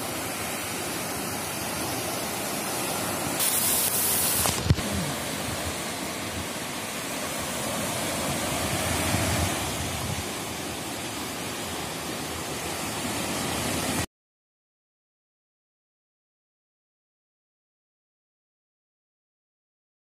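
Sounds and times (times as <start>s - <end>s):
waves washing onto sand: 0.0s - 14.1s.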